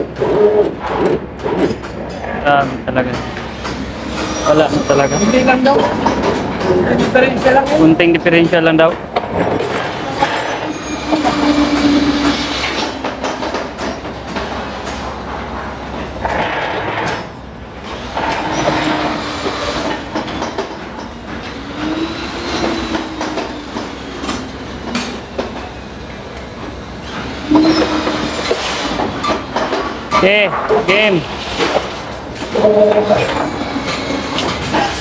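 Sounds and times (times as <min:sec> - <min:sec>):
steel bars clanking and scraping: 0:03.1 - 0:08.7, 0:09.4 - 0:15.0.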